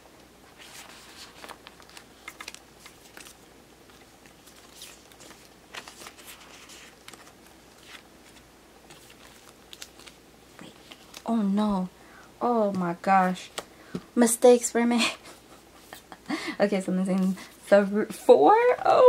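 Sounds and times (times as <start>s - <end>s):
plastic sleeves rustling: 0.4s - 11.9s.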